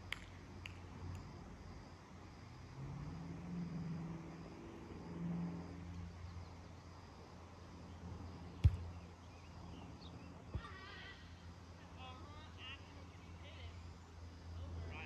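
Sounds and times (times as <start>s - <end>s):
steady low hum: 7.9s - 15.0s.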